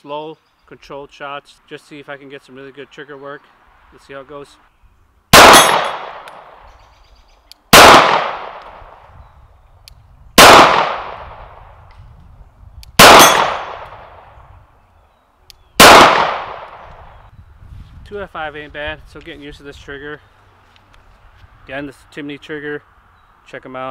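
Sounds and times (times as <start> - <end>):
pistol shots with long echo: 5.3 - 6.6, 7.7 - 9.1, 10.4 - 11.7, 13.0 - 14.3, 15.8 - 16.8.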